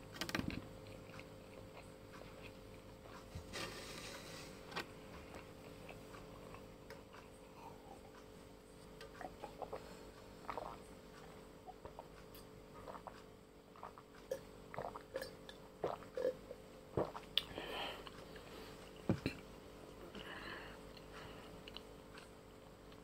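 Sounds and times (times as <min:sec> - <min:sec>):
swallowing and wet mouth sounds: 0:09.1 - 0:12.2, 0:12.8 - 0:16.4, 0:17.0 - 0:19.4.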